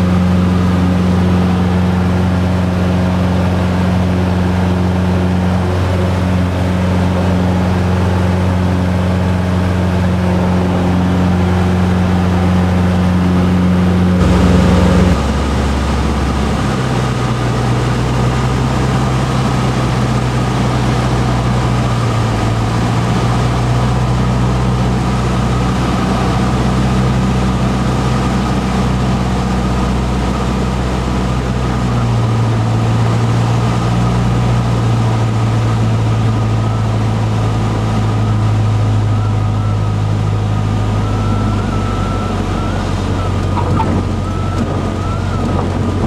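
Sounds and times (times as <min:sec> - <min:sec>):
airplane engine and propeller droning: 0:00.0 - 0:46.0.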